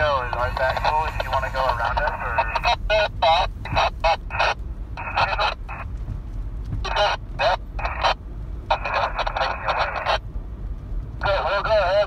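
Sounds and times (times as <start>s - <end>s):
vehicle driving on gravel: 0.0s - 12.0s.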